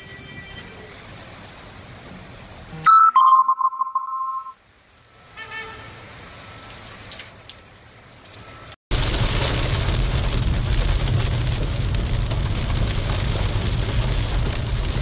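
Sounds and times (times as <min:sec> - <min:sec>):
rain falling on a street: 0:00.0 - 0:03.4, 0:04.0 - 0:15.0
loud steady tone: 0:02.9 - 0:04.6.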